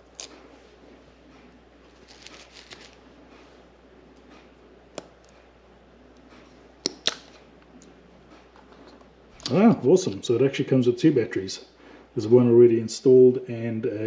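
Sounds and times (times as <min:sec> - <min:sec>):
hands rustling: 0:01.9 - 0:03.5.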